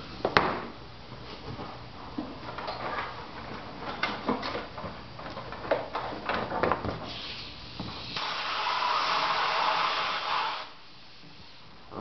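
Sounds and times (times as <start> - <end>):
air blow gun hissing: 7.1 - 11.7.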